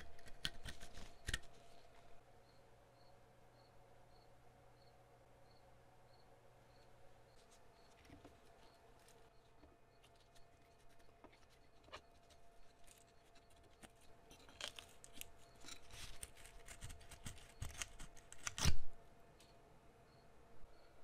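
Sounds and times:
small objects clicking and scraping: 0:00.0 - 0:01.7, 0:07.4 - 0:18.8.

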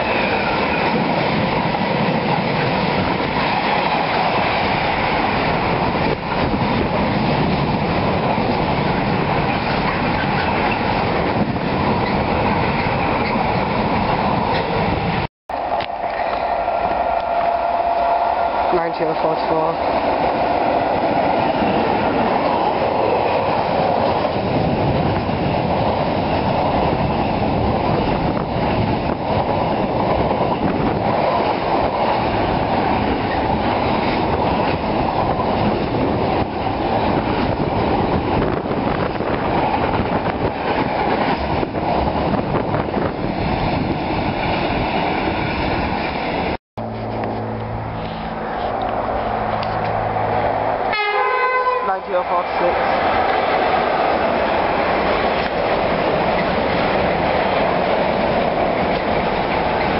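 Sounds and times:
freight train rumbling and clattering: 0:00.0 - 0:59.9.

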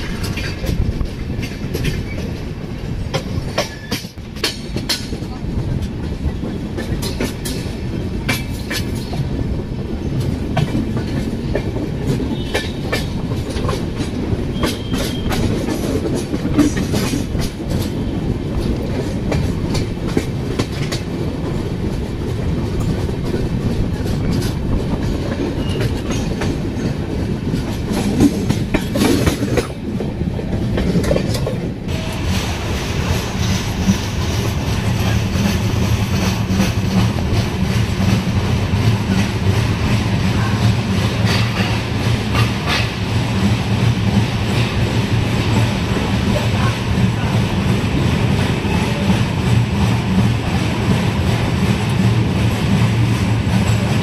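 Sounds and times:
wheels clicking over rail joints: 0:00.0 - 0:09.4, 0:10.1 - 0:31.9
train rumbling on track: 0:00.0 - 0:54.0.

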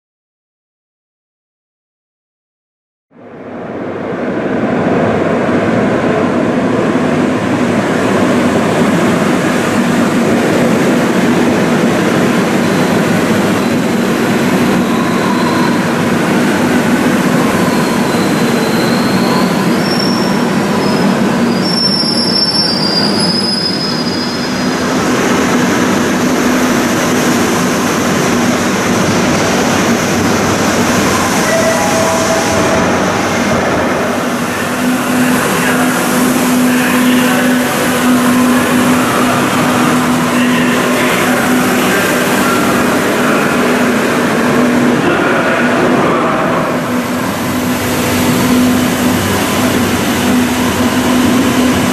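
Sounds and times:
metro train wheels rumbling: 0:03.2 - 0:51.9
high-pitched wheel squeals: 0:14.7 - 0:16.0, 0:17.3 - 0:24.7, 0:31.0 - 0:35.3.

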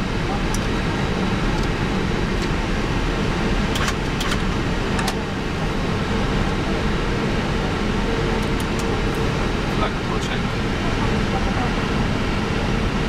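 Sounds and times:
air-conditioning blowing: 0:00.0 - 0:13.0
aircraft engines idling: 0:00.0 - 0:13.0.

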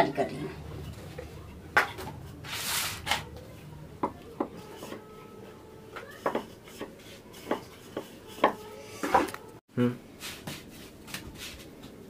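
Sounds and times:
rolling pin knocking on wooden board: 0:06.2 - 0:06.9.

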